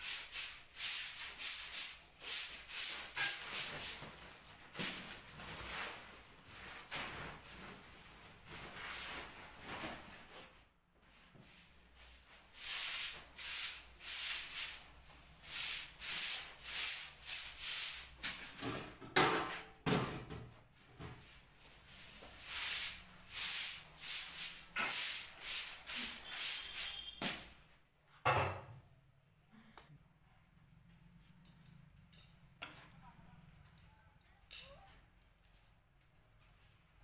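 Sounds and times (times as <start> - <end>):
broom sweeping floor: 0.0 - 28.2.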